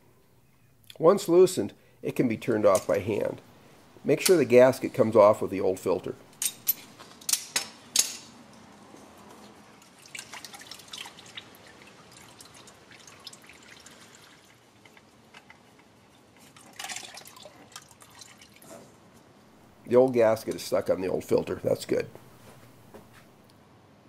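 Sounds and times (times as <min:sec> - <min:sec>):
oil dripping and trickling: 0:09.4 - 0:18.7.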